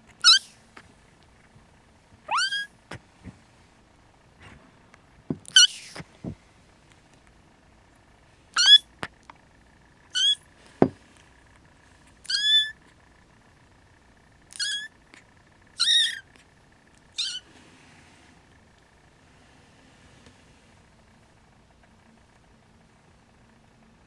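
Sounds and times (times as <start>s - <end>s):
kitten mewing: 0.2s - 0.6s, 2.3s - 3.0s, 5.4s - 6.1s, 8.5s - 9.0s, 10.1s - 10.4s, 12.2s - 12.8s, 14.5s - 14.9s, 15.8s - 16.3s, 17.1s - 17.4s.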